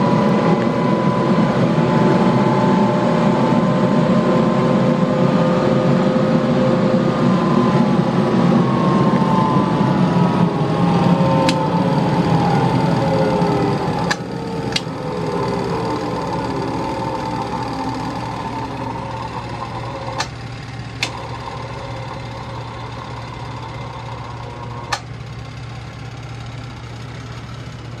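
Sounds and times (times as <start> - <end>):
centrifuge motor whine winding down: 0.0 - 28.0
low hum: 0.0 - 28.0
sharp clicks: 14.0 - 21.5.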